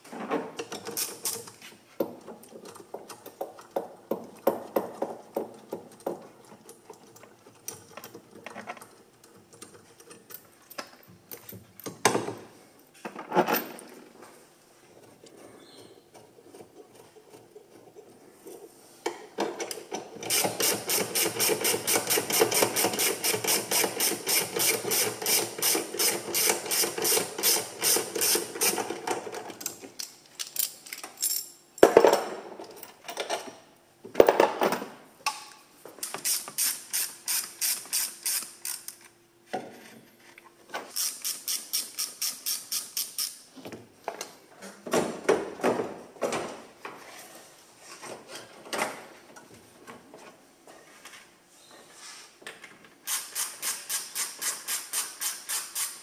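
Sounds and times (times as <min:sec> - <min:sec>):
ratchet wrench clicking: 0:36.0 - 0:39.0, 0:40.9 - 0:43.4, 0:53.1 - 0:56.0.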